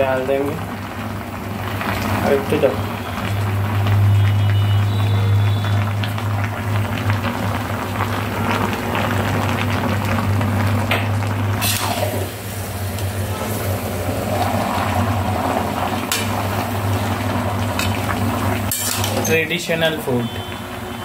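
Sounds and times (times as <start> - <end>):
hiss of cooking: 11.5 - 19.5
metal spatula scraping wok: 17.8 - 19.4.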